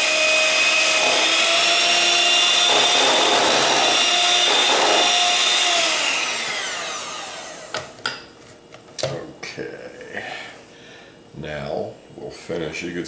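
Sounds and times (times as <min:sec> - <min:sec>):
electric hand mixer whining: 0:00.0 - 0:08.0.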